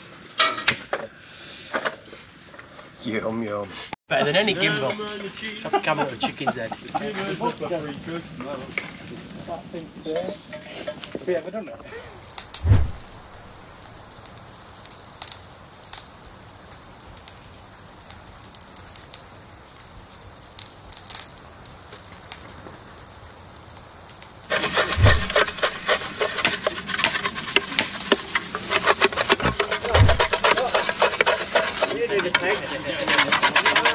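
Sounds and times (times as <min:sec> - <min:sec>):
light crackles and ticks: 0:13.3 - 0:24.5
brush scrubbing a metal tin: 0:24.5 - 0:33.9.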